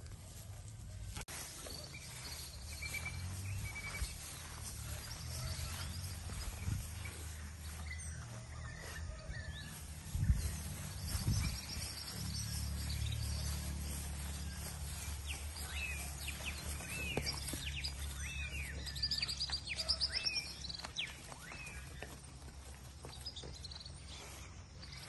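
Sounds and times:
small birds chirping: 0.4 - 25.0.

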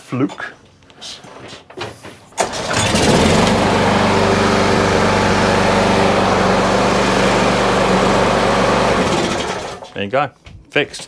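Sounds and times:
recoil starter pull: 2.4 - 4.2, 4.8 - 10.0
lawnmower engine running: 2.4 - 10.0.

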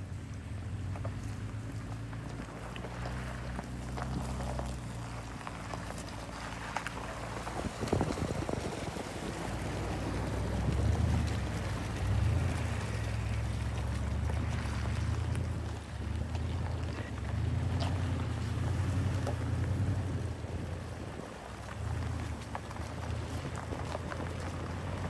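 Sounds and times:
vehicle engine humming: 0.0 - 25.0.

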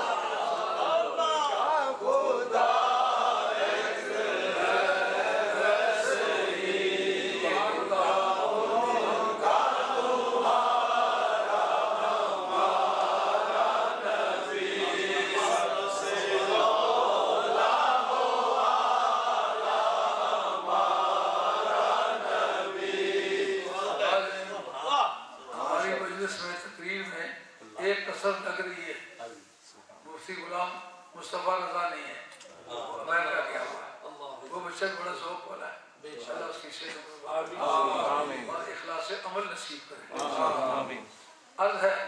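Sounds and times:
men chanting: 0.0 - 24.7.

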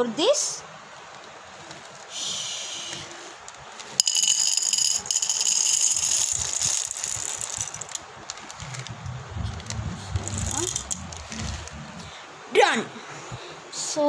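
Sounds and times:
popcorn kernels rattling: 3.8 - 11.8
plastic bag crinkling: 4.2 - 8.9.

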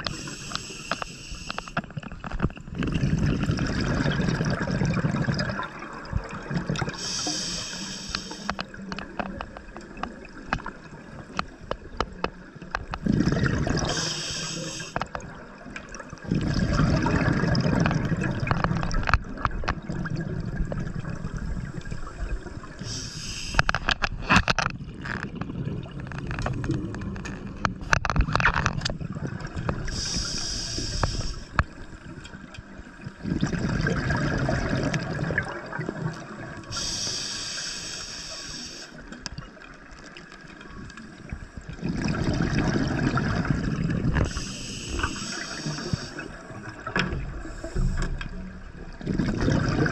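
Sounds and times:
regulator inhale hiss: 0.1 - 1.8, 6.9 - 8.6, 13.8 - 15.0, 22.8 - 23.8, 29.9 - 31.6, 36.7 - 39.1, 44.2 - 46.4, 47.3 - 48.3
exhaled bubbles rumbling: 1.8 - 7.8, 8.5 - 36.9, 39.3 - 49.9.

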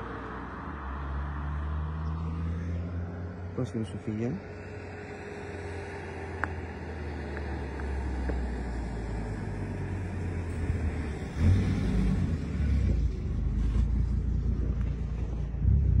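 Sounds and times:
low outdoor rumble: 8.5 - 16.0.

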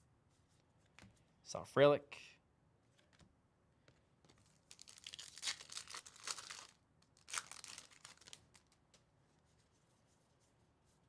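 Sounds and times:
wrapper tearing and crinkling: 4.7 - 8.8.

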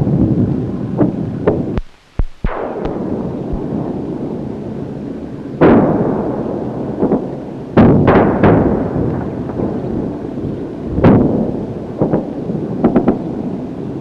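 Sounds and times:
explosions booming: 0.0 - 14.0
steady rushing rumble: 0.0 - 14.0.

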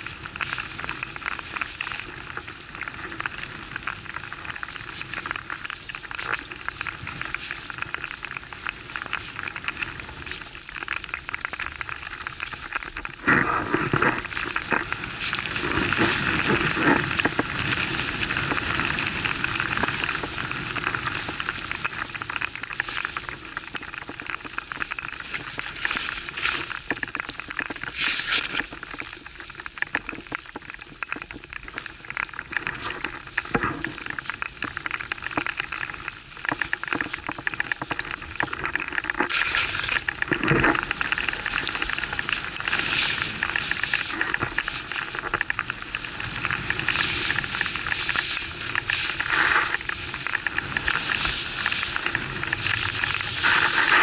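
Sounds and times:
wind: 0.0 - 54.0
skis hissing through snow: 39.3 - 40.1, 46.6 - 50.2, 51.0 - 54.0
rubbing on camera microphone: 53.3 - 54.0.

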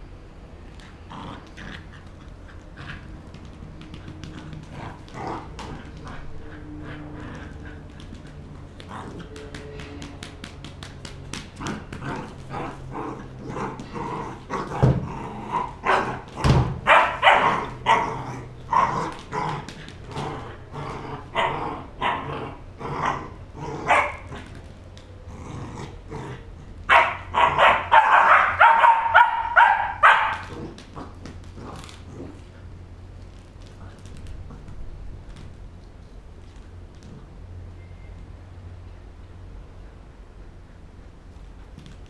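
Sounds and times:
puppy barking: 15.8 - 16.2, 16.8 - 19.1, 23.8 - 24.3, 26.9 - 30.6.

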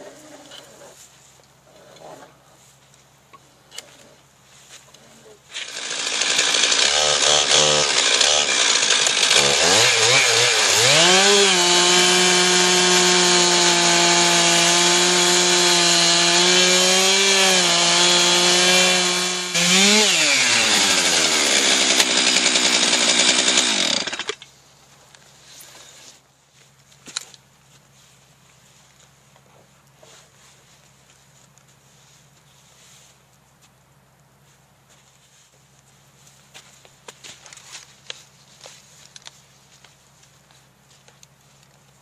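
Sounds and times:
chainsaw ripping a log: 5.5 - 24.4.

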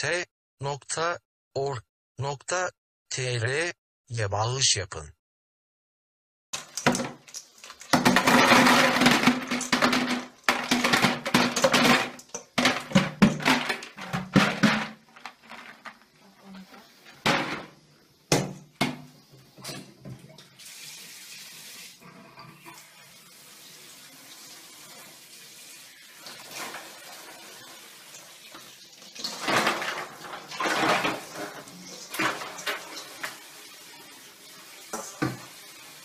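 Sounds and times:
ice cubes clattering into bucket: 6.6 - 16.1, 29.2 - 33.4.

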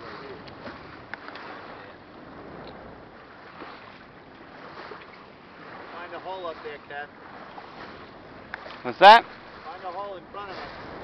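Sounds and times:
wind on microphone: 0.0 - 8.8, 9.4 - 11.0
water splashing along hull: 0.0 - 11.0.

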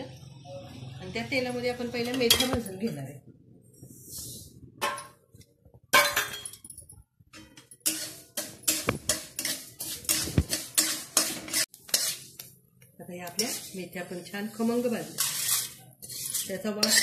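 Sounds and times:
metal spatula scraping steel pan: 7.4 - 12.4, 13.3 - 17.0.

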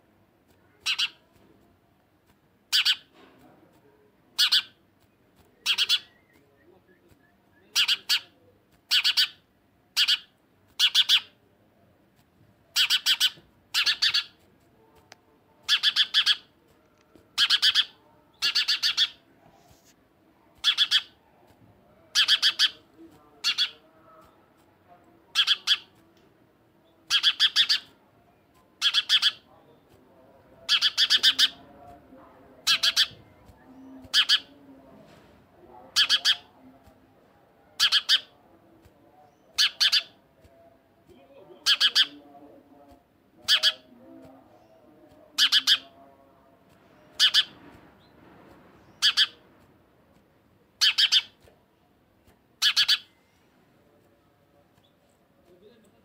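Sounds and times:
sparrow chirping: 0.8 - 1.2, 2.7 - 3.1, 4.3 - 4.8, 5.6 - 11.4, 12.7 - 14.4, 15.6 - 16.5, 17.3 - 19.2, 20.6 - 21.2, 22.0 - 22.8, 23.4 - 24.2, 25.3 - 25.9, 26.8 - 29.9, 30.6 - 31.9, 32.6 - 34.6, 35.8 - 36.6, 37.7 - 38.4, 39.2 - 40.2, 41.4 - 42.4, 43.4 - 46.1, 46.8 - 49.4, 50.8 - 51.5, 52.6 - 53.5.

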